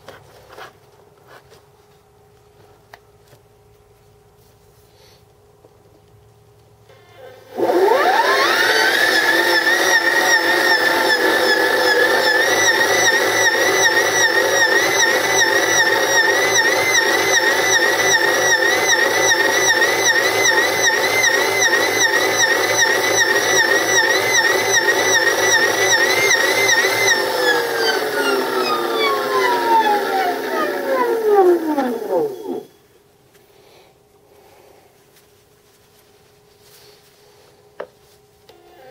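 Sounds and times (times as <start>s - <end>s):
electric motor whining: 7.5s - 32.8s.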